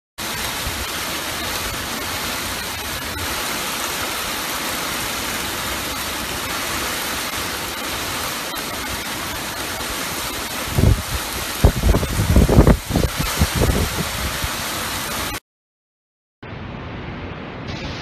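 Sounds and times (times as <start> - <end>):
torrential rain pouring: 0.2 - 15.4
strong wind: 10.6 - 14.8.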